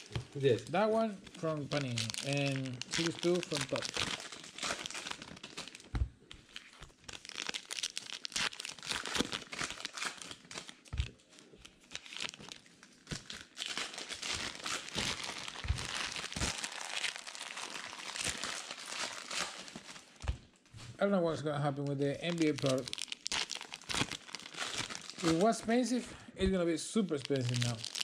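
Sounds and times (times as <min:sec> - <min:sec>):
foil wrappers crinkling and tearing: 0:00.0 - 0:20.2, 0:21.7 - 0:26.0, 0:27.0 - 0:28.0
soft thumps: 0:05.9 - 0:06.2
cards being handled: 0:25.2 - 0:25.8.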